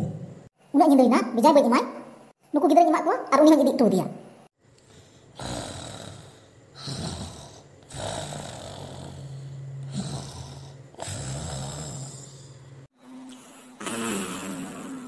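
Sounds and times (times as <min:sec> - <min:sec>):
person snoring: 0:04.8 - 0:15.0.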